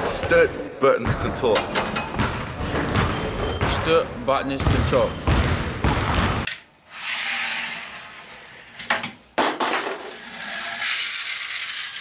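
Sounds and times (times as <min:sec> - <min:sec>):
toy car motor whirring: 0:06.9 - 0:08.8, 0:10.0 - 0:12.0.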